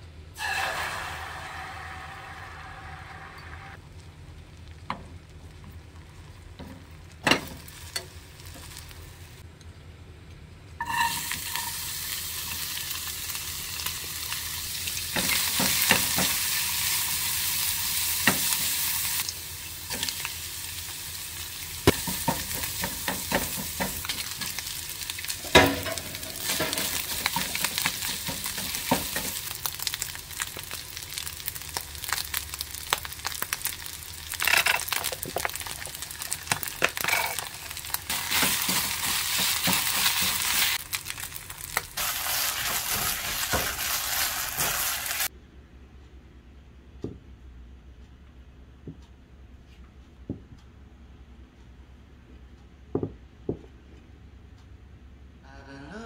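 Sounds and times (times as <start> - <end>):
food sizzling in a frying pan: 0.4 - 9.4, 10.8 - 45.3.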